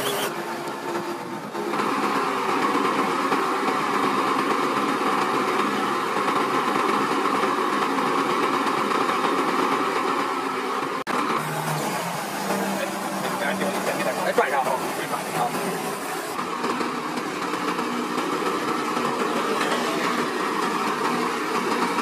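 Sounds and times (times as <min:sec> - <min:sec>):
hydraulic whine: 0:00.0 - 0:04.1, 0:11.1 - 0:22.0
truck engine running: 0:00.0 - 0:22.0.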